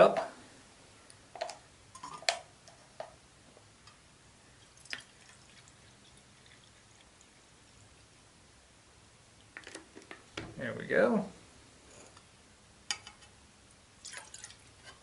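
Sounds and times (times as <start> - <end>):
water pouring into metal cup: 4.6 - 7.5, 14.0 - 14.7.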